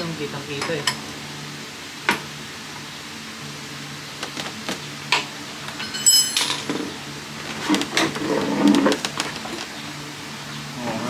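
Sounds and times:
steady low hum: 0.0 - 11.0
metallic ring: 5.8 - 6.7.

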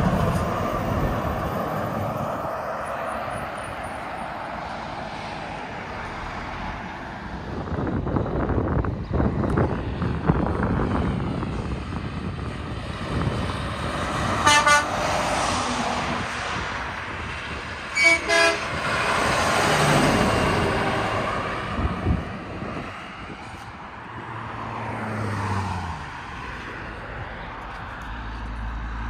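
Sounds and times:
trucks driving past: 0.0 - 29.0
truck air horn toots: 14.4 - 15.1, 17.9 - 18.8.

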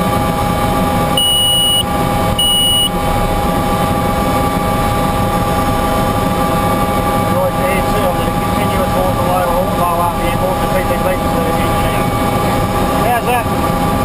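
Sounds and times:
helicopter engine whine and rumble: 0.0 - 14.0
short high electronic beeps: 1.2 - 1.8, 2.4 - 2.9.

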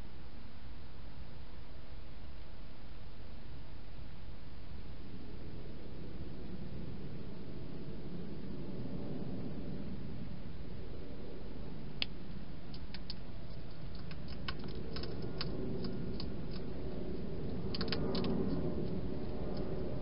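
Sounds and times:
steady low hiss: 0.0 - 20.0
hedgehog crunching dry food: 12.7 - 20.0.

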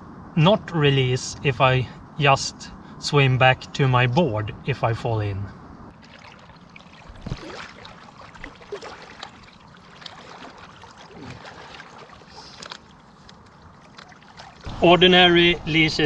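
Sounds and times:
person swimming splashing water: 5.9 - 14.8.

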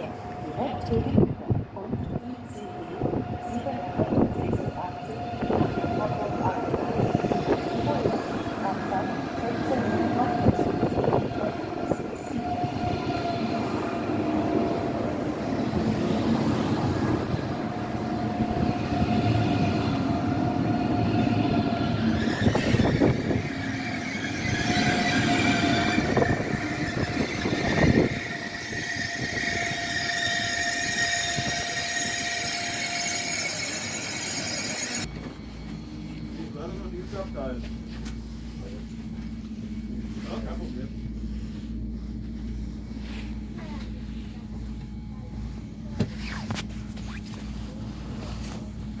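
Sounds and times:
train wheels rumbling on rails: 0.0 - 45.0
wheels and brakes squealing: 21.3 - 35.1.

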